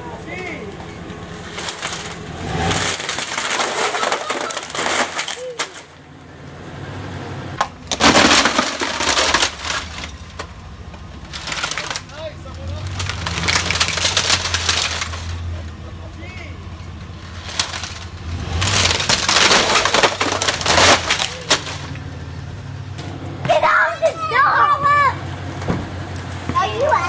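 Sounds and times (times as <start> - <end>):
tv cracking under a tyre: 1.5 - 6.0, 7.7 - 16.4, 17.0 - 22.1.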